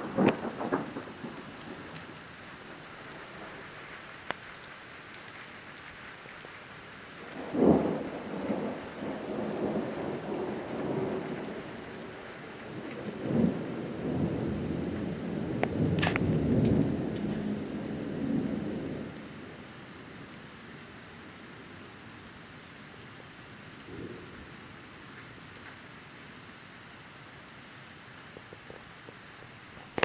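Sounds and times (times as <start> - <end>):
thunder clap and rumble: 0.0 - 3.6, 7.2 - 19.6
rain falling: 0.0 - 30.0.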